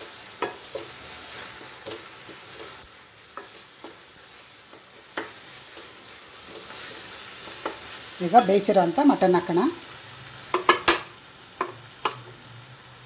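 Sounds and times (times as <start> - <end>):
spatula tapping pan: 0.0 - 8.6, 10.5 - 12.3
spatula scraping a pan: 0.0 - 8.8
masala sizzling: 0.0 - 13.0.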